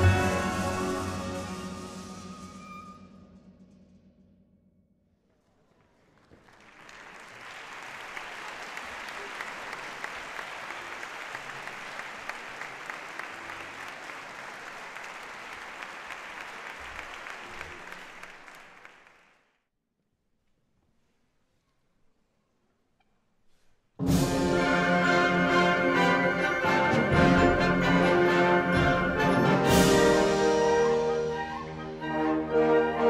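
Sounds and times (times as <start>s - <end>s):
audience applauding: 5.8s - 19.5s.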